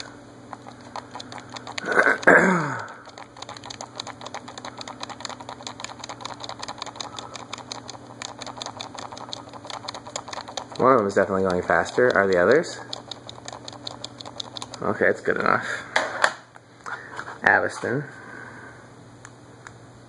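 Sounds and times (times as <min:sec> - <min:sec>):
fast even ticking: 0:00.0 - 0:14.9
ceiling fans humming: 0:00.0 - 0:20.0.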